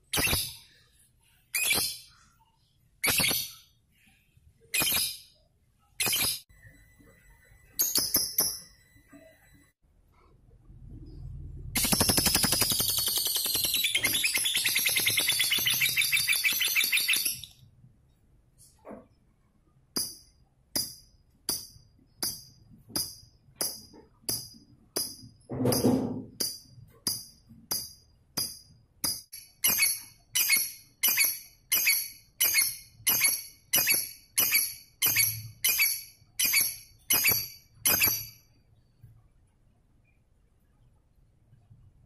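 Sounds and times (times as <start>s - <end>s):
bird shrill chirps: 11.8s - 17.6s.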